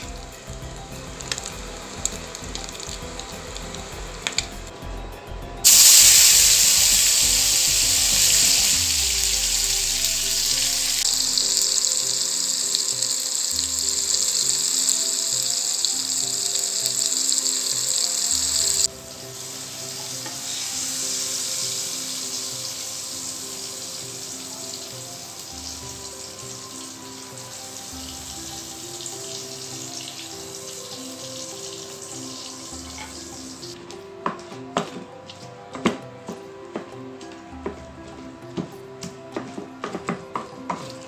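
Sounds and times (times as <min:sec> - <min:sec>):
hot oil sizzling in a frying pan: 0:00.0 - 0:04.5, 0:05.6 - 0:33.8
soft background music: 0:00.0 - 0:41.0.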